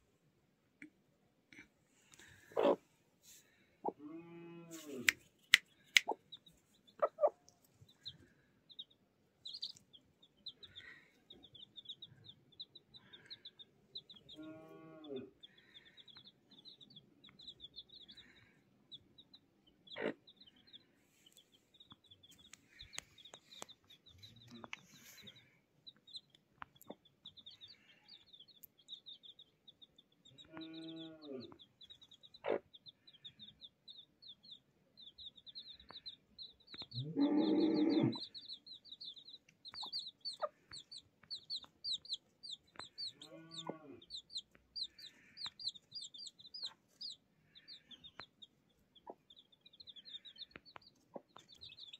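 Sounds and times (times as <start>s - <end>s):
hen clucking: 2.2s - 2.9s, 3.8s - 8.1s, 19.8s - 29.4s, 30.2s - 51.9s
chicks peeping: 2.2s - 4.0s, 4.8s - 51.9s.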